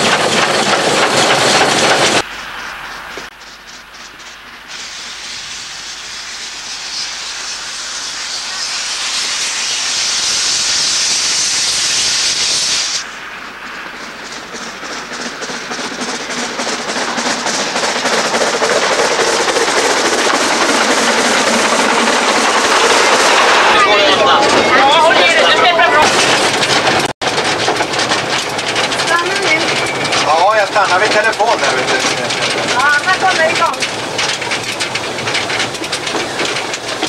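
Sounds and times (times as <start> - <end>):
escaping steam hiss: 0.0 - 24.6
steam locomotive rhythmic beat: 0.0 - 37.0.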